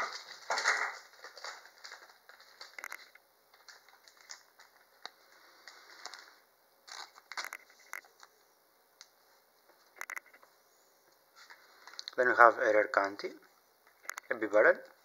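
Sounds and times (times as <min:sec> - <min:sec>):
plastic card sleeve crinkling: 0:00.0 - 0:08.4, 0:11.4 - 0:12.2.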